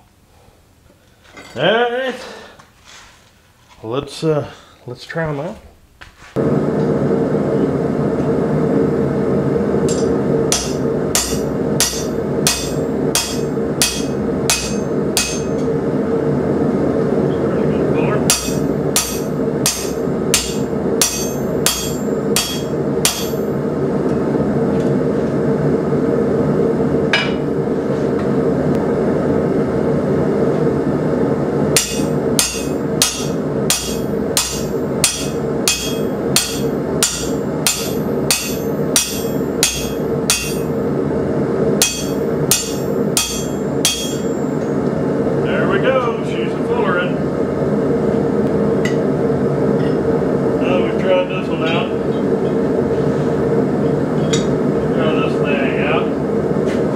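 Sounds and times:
hammer striking metal: 9.9s - 15.7s, 18.3s - 23.5s, 31.8s - 40.7s, 41.8s - 44.5s.

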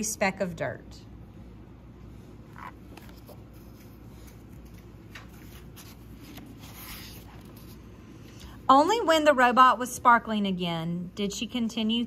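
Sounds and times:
book page turning: 2.6s - 7.8s.

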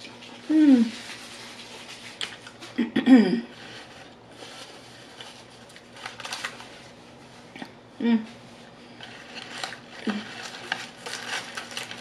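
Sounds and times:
paper wrapper crinkling: 0.0s - 2.8s, 3.5s - 7.4s, 8.5s - 12.0s
person humming: 0.5s - 1.0s, 8.0s - 8.4s.

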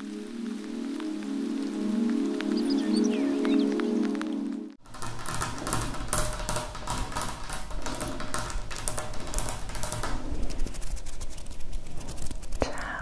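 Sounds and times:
fingernails tapping on glass jars: 4.8s - 10.6s.

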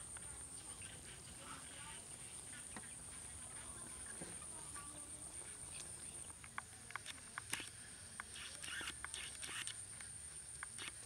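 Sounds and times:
insects trilling: 0.0s - 11.0s
faint clicks: 5.7s - 11.0s.

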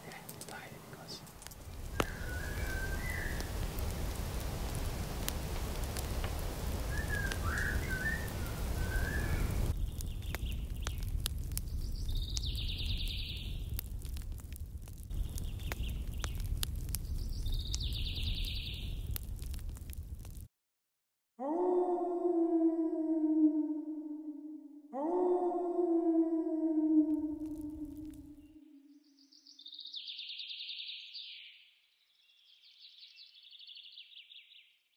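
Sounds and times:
steady low rumble: 0.1s - 20.4s.

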